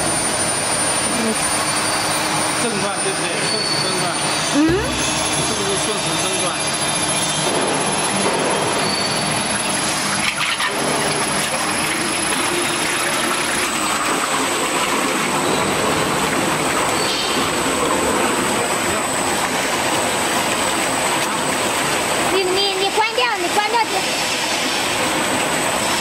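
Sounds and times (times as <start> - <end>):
mixer motor churning liquid: 0.0 - 26.0.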